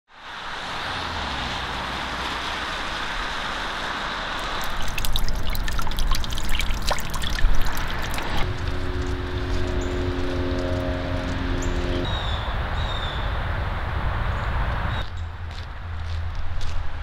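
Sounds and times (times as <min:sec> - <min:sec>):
rain hissing on wet road: 0:00.1 - 0:04.6
water splattering onto gravel: 0:04.4 - 0:08.5.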